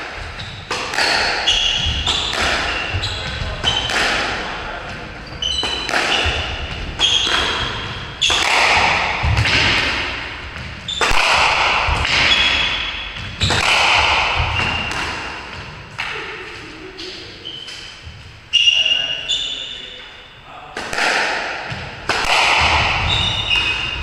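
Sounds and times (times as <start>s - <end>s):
shoes squeaking on wooden floor: 0.3s - 4.0s, 4.7s - 8.6s, 14.4s - 20.4s, 22.8s - 24.0s
squash ball cracks off walls: 0.7s - 4.5s, 5.6s - 16.1s, 20.8s - 24.0s.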